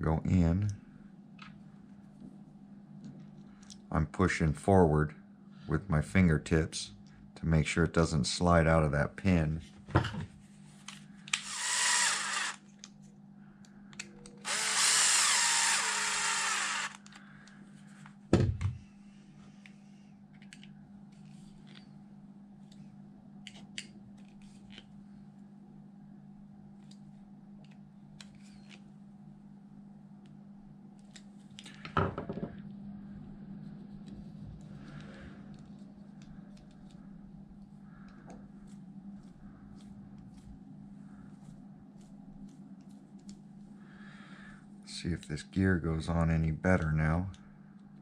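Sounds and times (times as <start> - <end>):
steady low hum: 0.0 - 48.0
cordless drill driving screws: 11.4 - 12.6, 14.4 - 17.0.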